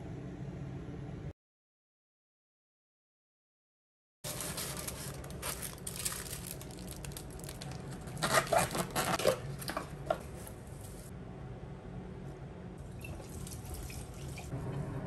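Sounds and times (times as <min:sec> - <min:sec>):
aluminium foil crinkling: 0:04.3 - 0:11.1
plastic bag rustling: 0:04.3 - 0:11.1.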